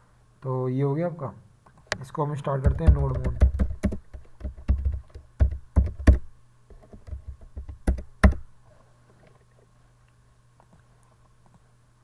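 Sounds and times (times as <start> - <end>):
low steady hum: 0.0 - 12.0
computer keyboard typing: 2.6 - 8.5.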